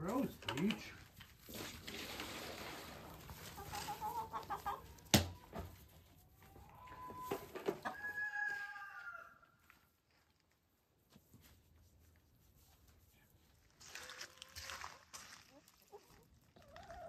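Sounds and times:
chickens calling: 3.3s - 9.5s
rooster crowing: 7.9s - 9.5s.

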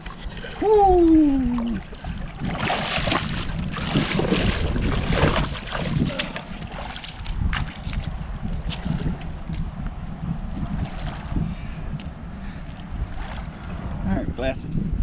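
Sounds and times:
bare feet splashing in shallow water: 0.0s - 14.0s
wind on microphone: 0.0s - 15.0s
man shouting woo: 0.6s - 1.8s.

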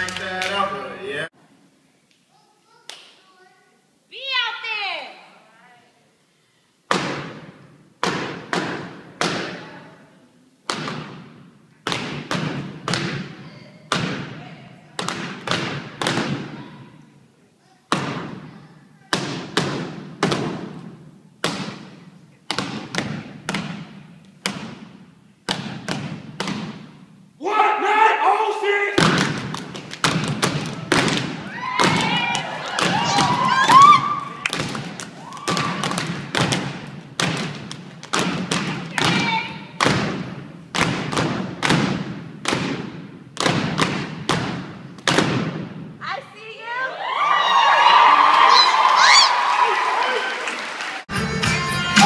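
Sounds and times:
hand claps: 0.0s - 0.7s, 2.8s - 3.2s
person shouting: 27.4s - 29.0s
stomps on a stage: 29.0s - 45.9s.

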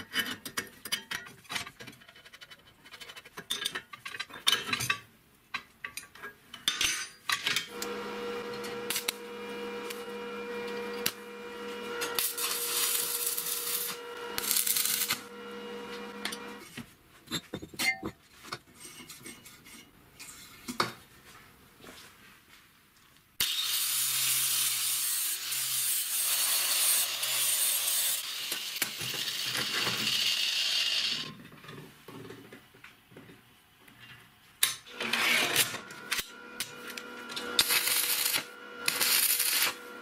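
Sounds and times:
angle grinder running: 7.7s - 16.6s, 34.9s - 40.0s
grinder disc cutting steel: 7.7s - 16.7s, 23.4s - 31.3s, 34.9s - 40.0s
metal clinks and knocks: 17.3s - 18.2s.

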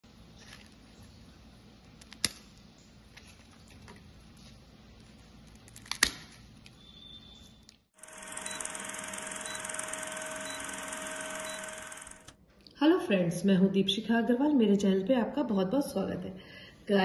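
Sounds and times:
crisp snacks snapping and crackling: 5.5s - 6.5s
film projector whirring: 8.0s - 12.4s.

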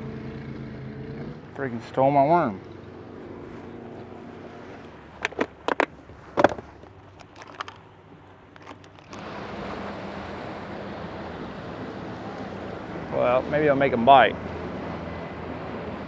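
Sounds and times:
wind: 0.0s - 16.0s
plastic tackle box clicks and rattles: 5.2s - 7.9s, 8.5s - 9.2s.

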